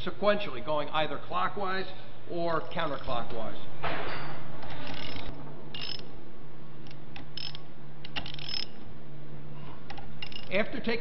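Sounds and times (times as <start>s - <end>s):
ratchet wrench clicking: 4.6s - 6.1s, 6.9s - 8.8s, 9.9s - 10.5s.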